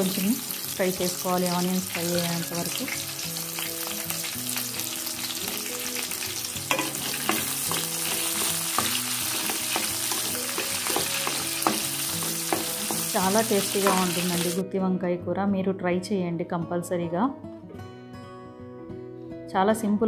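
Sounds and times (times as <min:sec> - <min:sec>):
onions sizzling in oil: 0:00.0 - 0:14.6
soft guitar music: 0:00.0 - 0:20.0
wooden spatula knocking pan: 0:06.7 - 0:14.4.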